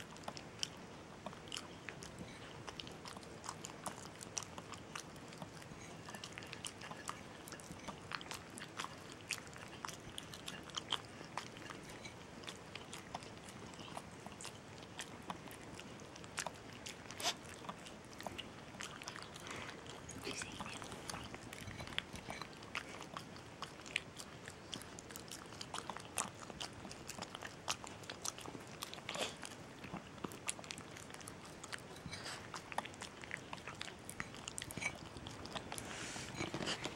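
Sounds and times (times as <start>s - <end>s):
dog licking and smacking: 0.0s - 36.9s.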